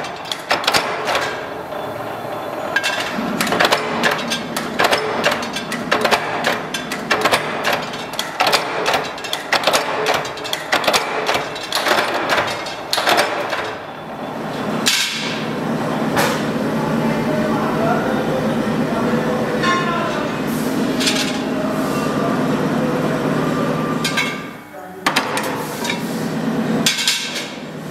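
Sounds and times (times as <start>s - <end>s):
punch press striking metal: 0.0s - 1.5s, 2.8s - 13.8s.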